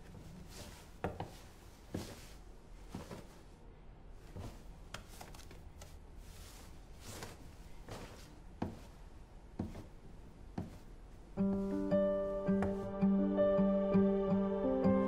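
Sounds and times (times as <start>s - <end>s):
soft footsteps: 0.0s - 3.6s, 4.2s - 13.0s
clothing rustling: 0.0s - 12.9s.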